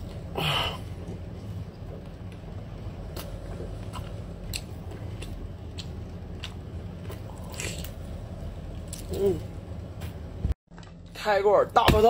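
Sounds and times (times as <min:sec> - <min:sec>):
steady low hum: 0:00.0 - 0:12.0
chewing with wet clicks: 0:03.1 - 0:08.0.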